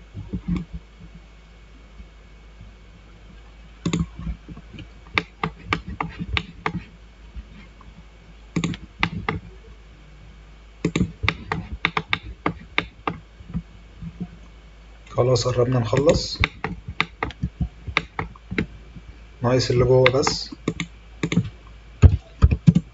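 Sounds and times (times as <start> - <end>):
keyboard and mouse clicking: 3.8 - 6.9, 8.6 - 9.5, 10.8 - 14.3, 15.9 - 18.7, 20.0 - 22.9.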